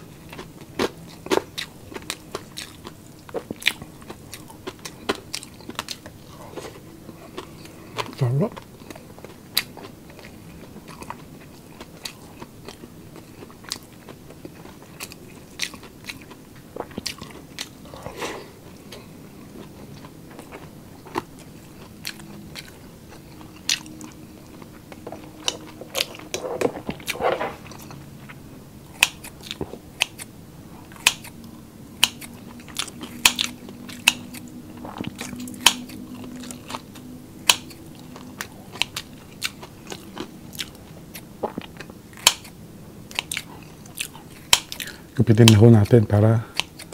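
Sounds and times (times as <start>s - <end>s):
person chewing crunchy food: 0.0s - 46.9s.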